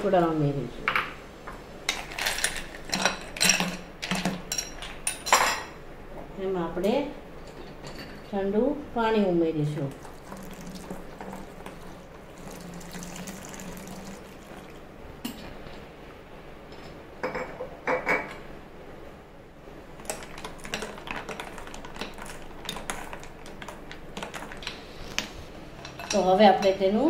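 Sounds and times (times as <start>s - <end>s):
water pouring into bowl: 9.9s - 14.9s.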